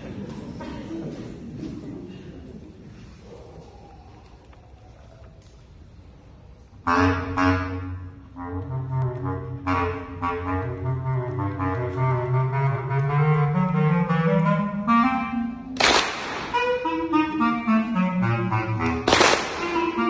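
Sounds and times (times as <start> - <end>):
bass clarinet low notes: 6.6 - 15.8, 16.5 - 20.0.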